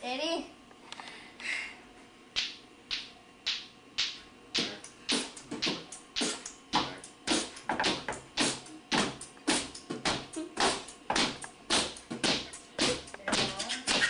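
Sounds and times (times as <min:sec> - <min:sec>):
hip-hop drum beat: 0:04.6 - 0:14.0.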